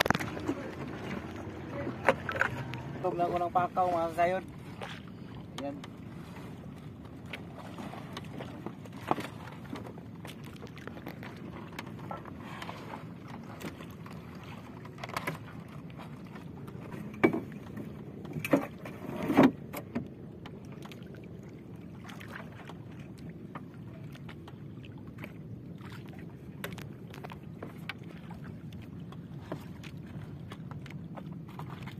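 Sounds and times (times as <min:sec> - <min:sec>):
water around boat: 0:00.0 - 0:31.9
wind: 0:00.0 - 0:31.9
knocks against wooden hull: 0:16.8 - 0:20.1.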